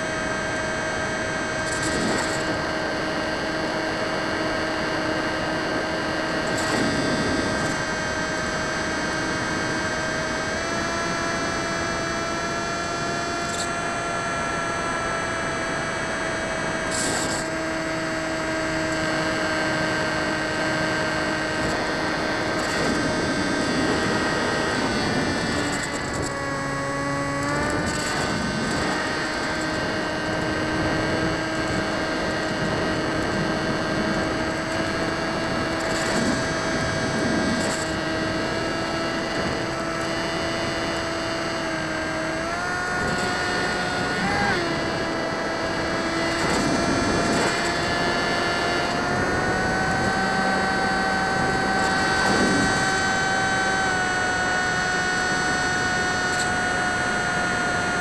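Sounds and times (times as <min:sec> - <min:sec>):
model plane motor whine: 0:00.0 - 0:58.0.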